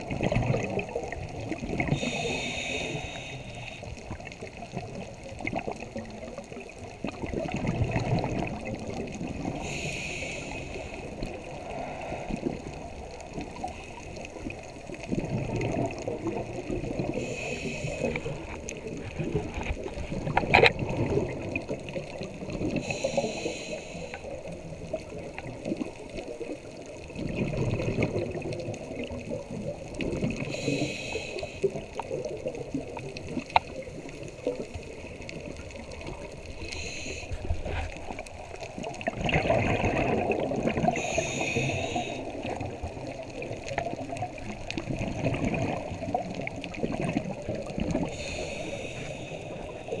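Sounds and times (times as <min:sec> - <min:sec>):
bubbling exhale: 0:00.0 - 0:50.0
regulator hissing inhale: 0:01.9 - 0:04.0, 0:09.4 - 0:14.3, 0:17.0 - 0:18.6, 0:22.8 - 0:24.6, 0:30.4 - 0:32.0, 0:36.1 - 0:38.3, 0:40.8 - 0:42.6, 0:48.1 - 0:50.0.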